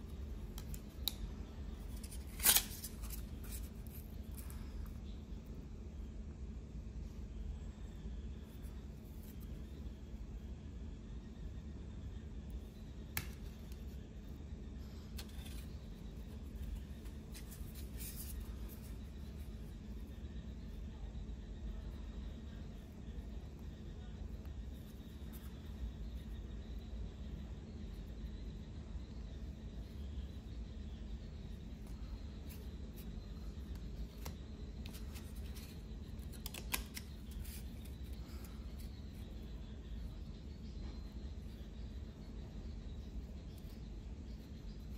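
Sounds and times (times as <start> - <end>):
low steady hum: 0.0 - 44.9
metal cards clicking and sliding: 1.9 - 3.7, 34.2 - 37.9.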